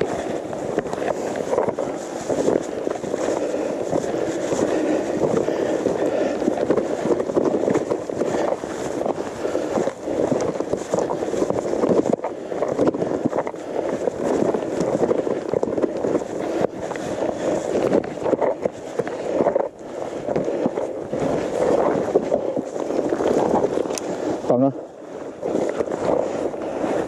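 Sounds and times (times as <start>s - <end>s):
bike tyres crunching on gravel: 0.0s - 27.0s
wind buffeting microphone: 0.0s - 27.0s.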